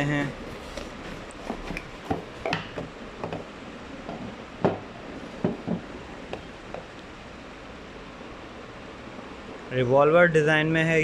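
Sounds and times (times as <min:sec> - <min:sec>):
ceramic mug knocks and clicks: 0:01.8 - 0:03.5.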